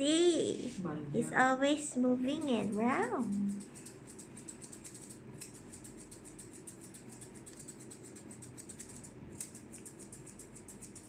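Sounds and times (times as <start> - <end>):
scissors snipping hair: 2.3 - 11.0.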